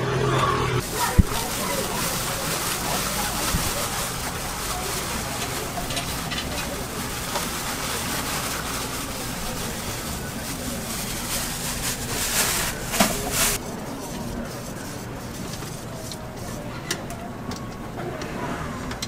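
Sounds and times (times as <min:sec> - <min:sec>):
street market din: 0:00.0 - 0:19.0
plastic bag rustling: 0:00.8 - 0:13.7.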